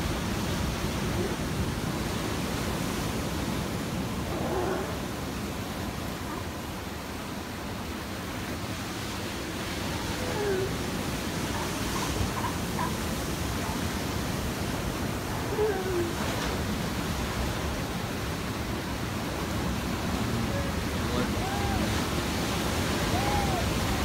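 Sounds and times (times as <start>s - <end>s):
surf breaking on rocks: 8.4s - 24.0s.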